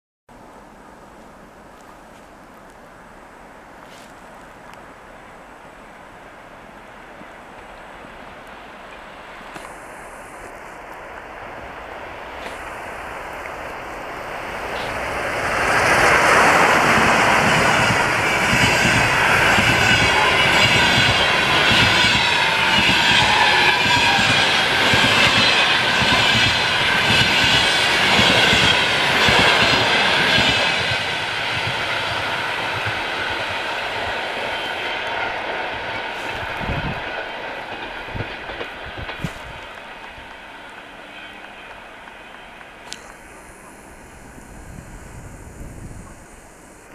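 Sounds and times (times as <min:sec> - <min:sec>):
electric locomotive passing: 0:04.6 - 0:46.9
train wheels clattering over rails: 0:14.6 - 0:43.4.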